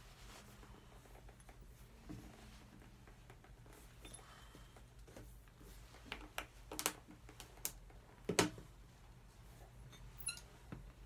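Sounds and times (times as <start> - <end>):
short high squeak: 9.9 - 10.5.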